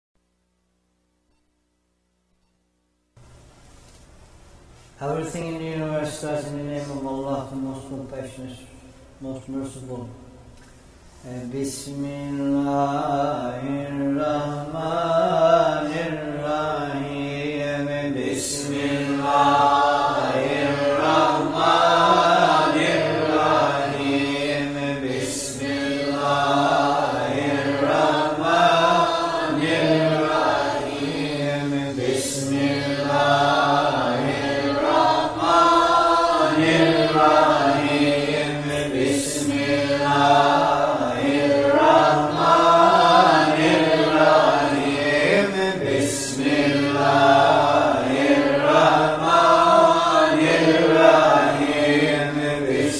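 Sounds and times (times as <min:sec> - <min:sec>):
voices chanting slowly: 0:11.1 - 0:52.9.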